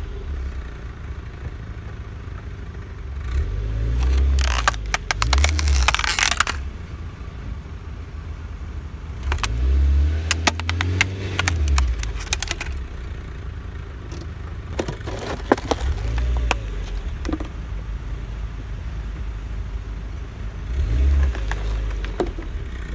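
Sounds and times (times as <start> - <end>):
car engine rumbling: 0.0 - 22.9
plastic cracking under tyre: 3.9 - 6.8, 9.2 - 12.9, 14.1 - 17.6, 20.9 - 22.5.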